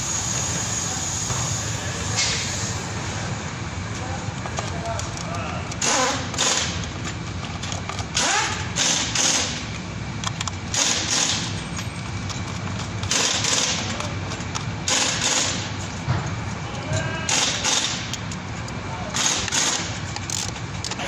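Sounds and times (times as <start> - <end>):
ratchet clicking: 4.8 - 15.8, 17.3 - 21.0.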